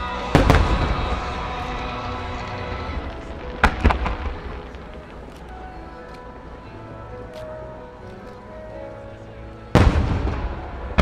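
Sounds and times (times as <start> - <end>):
firework shells bursting: 0.0 - 5.9
music playing: 0.0 - 11.0.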